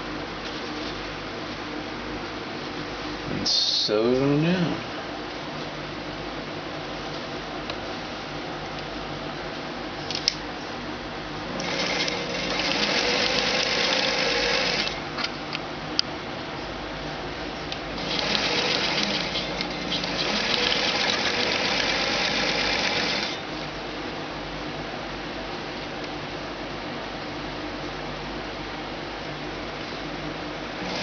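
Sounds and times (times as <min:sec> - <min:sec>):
sewing machine stitching: 0:11.6 - 0:15.0, 0:18.0 - 0:23.4, 0:30.8 - 0:31.0.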